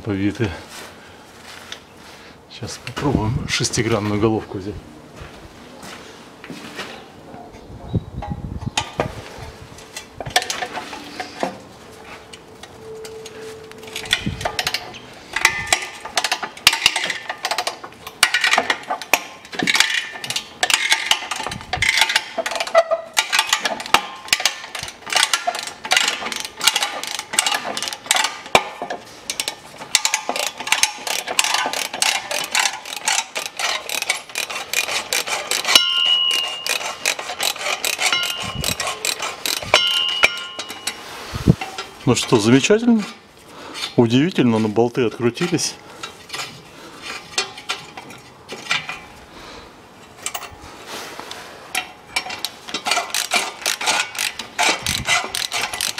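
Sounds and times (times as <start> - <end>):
ratchet wrench clicking: 15.4 - 28.6, 29.3 - 41.0, 52.2 - 55.9.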